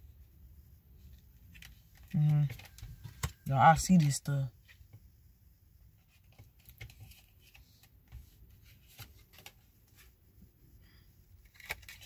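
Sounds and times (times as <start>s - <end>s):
cards clicking and rustling: 1.1s - 4.2s, 6.1s - 10.0s, 11.4s - 12.0s.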